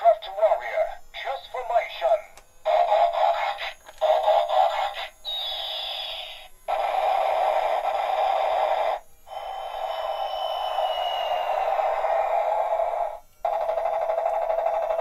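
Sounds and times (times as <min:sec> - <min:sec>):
toy playing electronic music: 0:00.0 - 0:15.0
falling whistle-like glide: 0:09.3 - 0:13.2.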